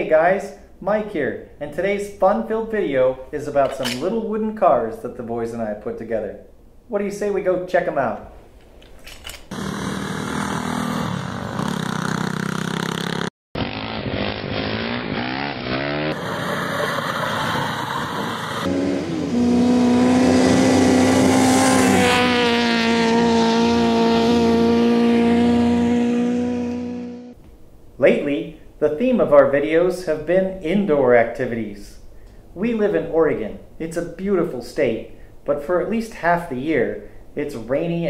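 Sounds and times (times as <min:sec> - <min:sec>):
buggy engine running and revving: 0:09.5 - 0:27.4.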